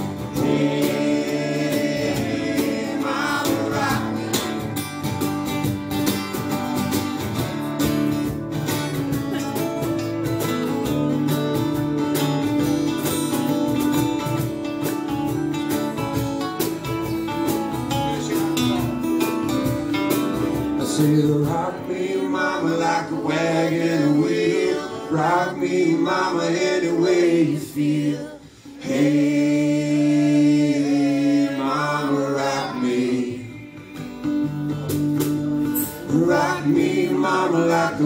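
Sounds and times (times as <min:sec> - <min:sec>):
men singing together: 0:00.0 - 0:04.8, 0:20.8 - 0:34.2, 0:36.0 - 0:38.0
strummed acoustic guitar: 0:00.0 - 0:38.0.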